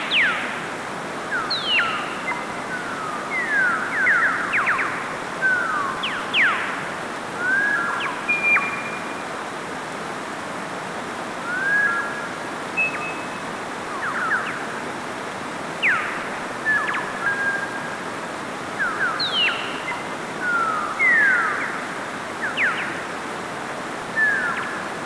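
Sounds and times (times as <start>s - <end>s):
stream rushing over rocks: 0.0s - 25.0s
high whistled calls: 1.3s - 6.8s, 7.4s - 9.3s, 11.4s - 14.8s, 15.8s - 17.8s, 18.8s - 23.0s, 24.1s - 25.0s.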